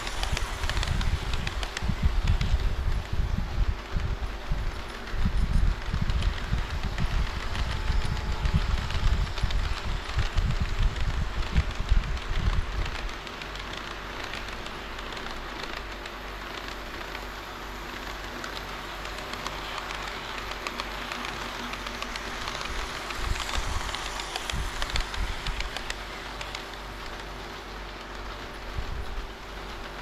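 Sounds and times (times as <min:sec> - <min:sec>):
model train wheels rolling on rail: 0:00.0 - 0:30.0
wheels clicking over rail joints: 0:00.0 - 0:30.0.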